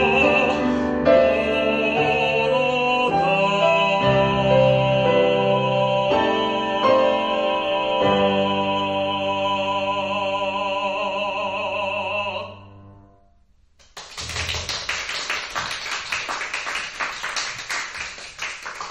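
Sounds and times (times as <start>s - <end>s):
man singing classically with vibrato: 0.0s - 13.0s
audience clapping: 13.8s - 18.9s.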